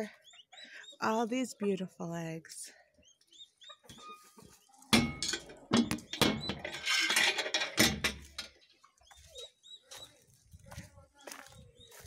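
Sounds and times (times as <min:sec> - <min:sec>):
metal latch rattling: 0:05.0 - 0:08.6.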